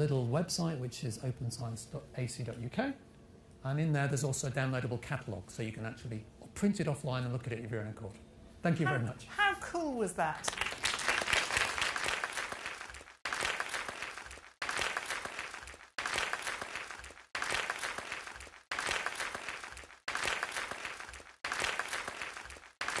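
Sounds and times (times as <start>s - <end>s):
audience applause: 10.5s - 23.0s.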